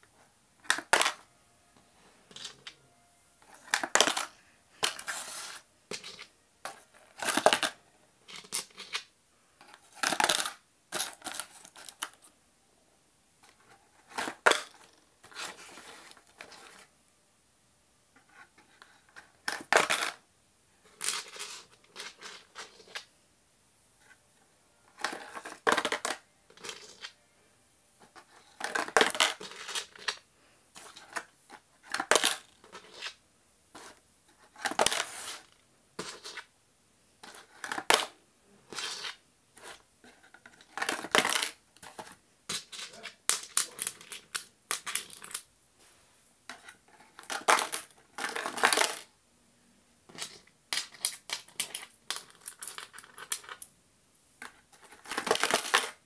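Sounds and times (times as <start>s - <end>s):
coins clattering down cardboard chutes: 25.0s - 27.2s, 28.4s - 30.2s, 40.6s - 41.6s, 42.5s - 45.4s, 47.2s - 49.1s, 54.8s - 56.0s.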